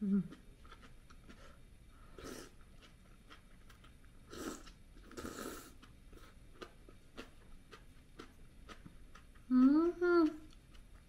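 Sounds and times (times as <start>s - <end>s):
faint chewing: 0.0s - 11.0s
breathy mouth sounds: 4.3s - 6.4s.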